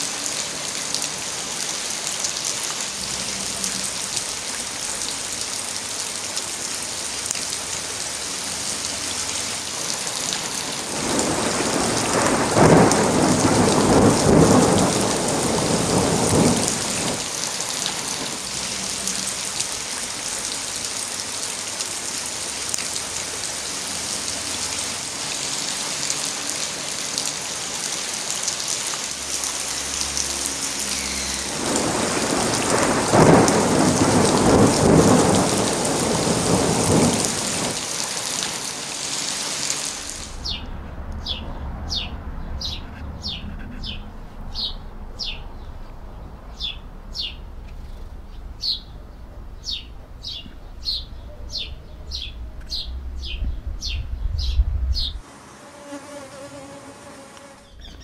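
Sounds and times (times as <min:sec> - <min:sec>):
steady rain hissing: 0:00.0 - 0:57.8
thunder rolling: 0:10.8 - 0:17.4, 0:31.4 - 0:37.9, 0:40.0 - 0:55.2.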